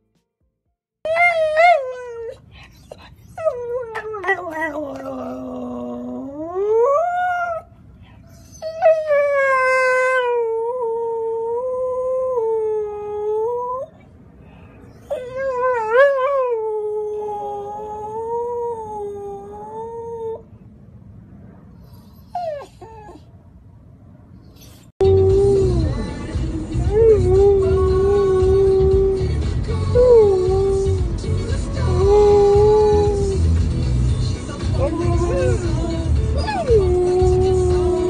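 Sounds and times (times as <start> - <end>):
dog howling: 34.8 - 38.0.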